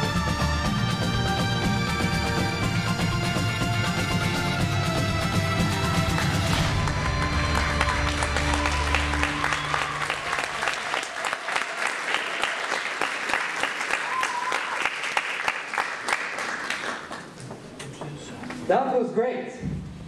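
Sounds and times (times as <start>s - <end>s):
music: 0.0s - 10.8s
audience applauding: 5.4s - 18.7s.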